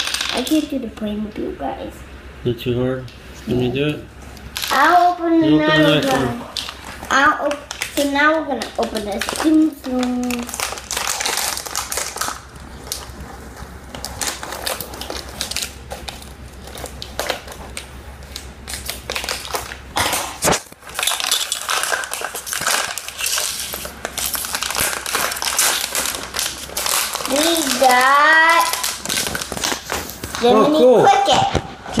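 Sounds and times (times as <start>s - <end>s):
foil packet crinkling: 4.4s - 5.1s, 5.8s - 30.6s.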